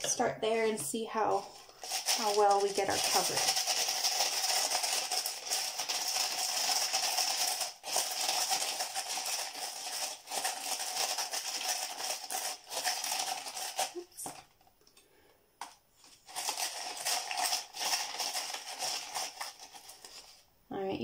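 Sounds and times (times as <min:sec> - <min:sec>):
glass pieces rattling in a cup: 0:01.8 - 0:14.0.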